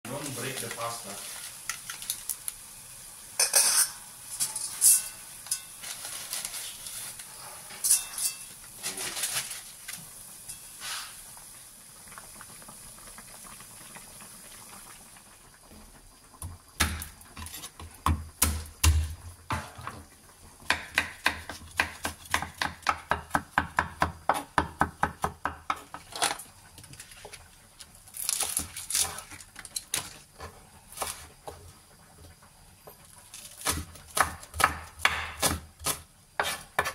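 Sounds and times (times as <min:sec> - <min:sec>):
water boiling in a wok: 0:00.1 - 0:36.9
utensils clinking against pan: 0:03.4 - 0:09.5, 0:10.4 - 0:10.9
knife chopping on wooden board: 0:20.7 - 0:26.0, 0:33.6 - 0:36.9.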